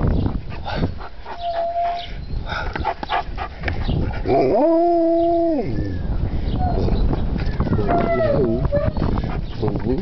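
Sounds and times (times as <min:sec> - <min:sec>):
dog whining and yipping: 0:01.3 - 0:02.2, 0:06.6 - 0:09.1
dog howling: 0:07.7 - 0:09.0.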